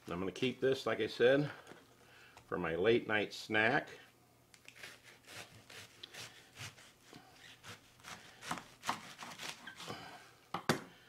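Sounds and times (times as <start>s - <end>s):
knife slicing cabbage on board: 4.8s - 10.0s.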